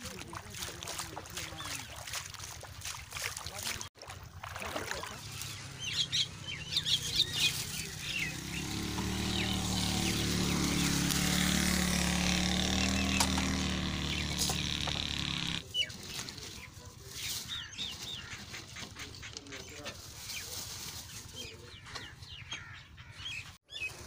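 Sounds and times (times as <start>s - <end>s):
small birds chirping: 0.9s - 2.6s, 5.0s - 24.0s
low engine hum: 4.3s - 15.6s.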